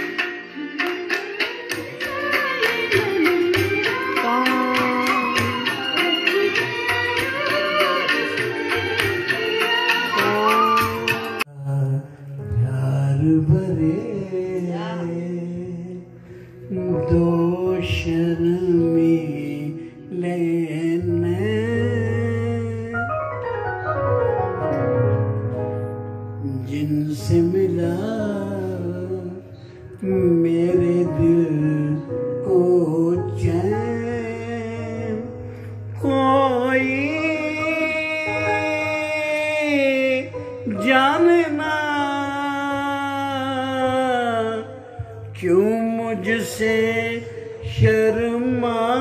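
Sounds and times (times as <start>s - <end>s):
man singing into microphone: 0.0s - 23.5s, 26.4s - 49.0s
electronic keyboard: 0.0s - 49.0s.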